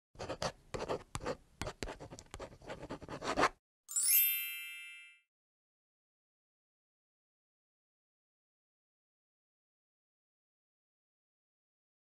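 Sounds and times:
pen scribbling: 0.2 - 3.6
bright chime: 3.9 - 5.3.

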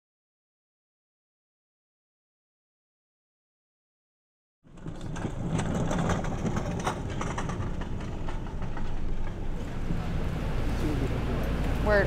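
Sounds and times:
clicks and knocks: 4.7 - 10.0
street noise: 4.7 - 12.0
vehicle engine rumbling: 4.7 - 12.0.

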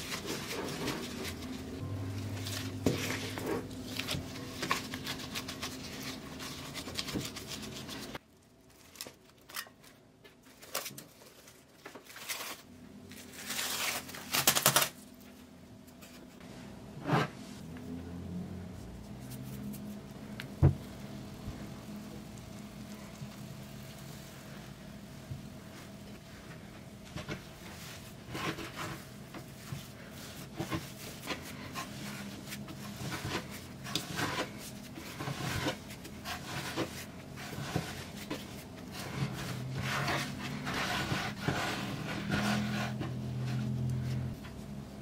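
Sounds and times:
hands kneading dough: 0.0 - 14.9, 18.7 - 45.0
plastic cling wrap crinkling: 0.0 - 15.3.

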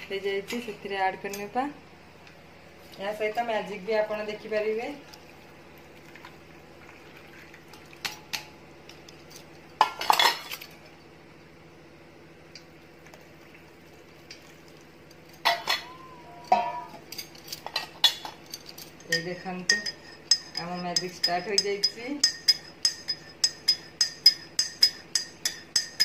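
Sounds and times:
steady low hum: 0.0 - 26.0
utensils and dishes clinking: 9.2 - 10.7, 15.1 - 26.0
clatter of dishes: 9.8 - 10.6, 15.4 - 18.8.

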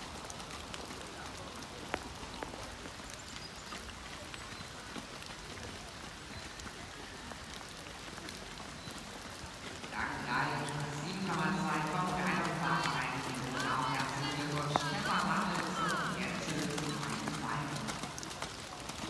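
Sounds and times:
light rain falling: 0.0 - 19.0.

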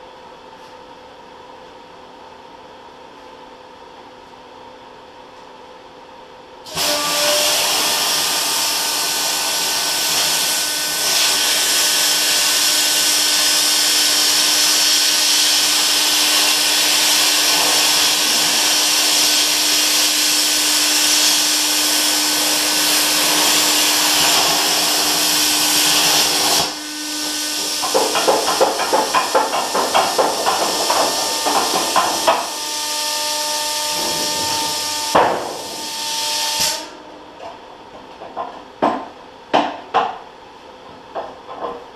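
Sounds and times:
plasma cutter hissing: 6.7 - 37.0
air regulator howl: 6.7 - 37.3.

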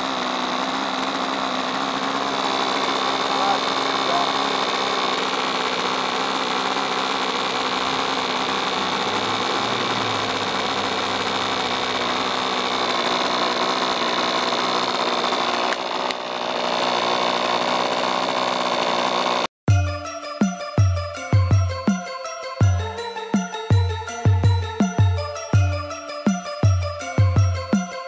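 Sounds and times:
model airplane engine running: 0.0 - 19.5.

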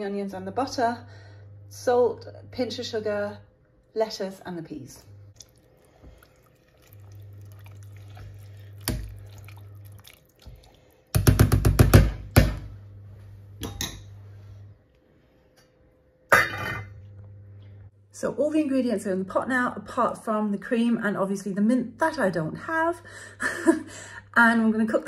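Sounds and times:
low steady hum: 0.0 - 25.0
spatula stirring peas in pot: 5.4 - 10.9.

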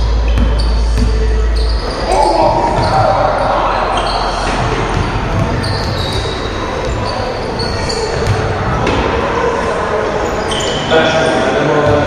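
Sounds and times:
sneakers squeaking on floor: 0.0 - 11.1
basketball bouncing: 0.2 - 1.3.

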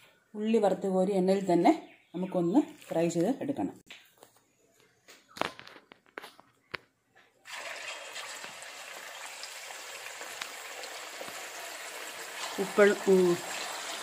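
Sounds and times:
chicken sizzling in hot oil: 7.5 - 14.0.

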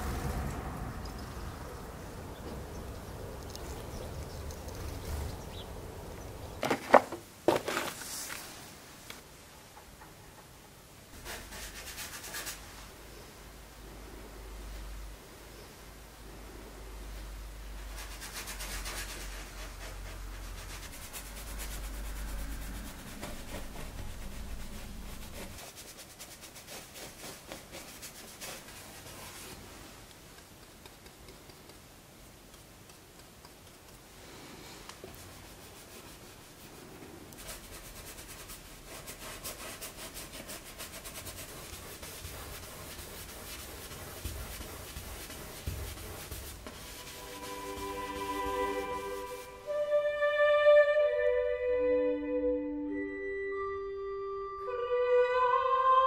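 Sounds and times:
low hum: 0.0 - 6.6, 19.0 - 25.6
paintbrush scratching on canvas: 11.2 - 12.8, 17.8 - 29.8, 35.1 - 49.7.

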